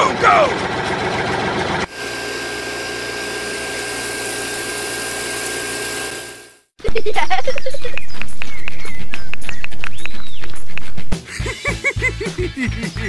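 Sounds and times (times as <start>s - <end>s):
small electric motor running: 1.8s - 6.7s.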